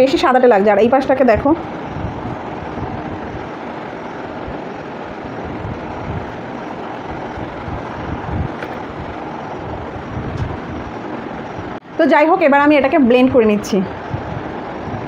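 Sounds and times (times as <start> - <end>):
fluttering low rumble: 0.8 - 11.8.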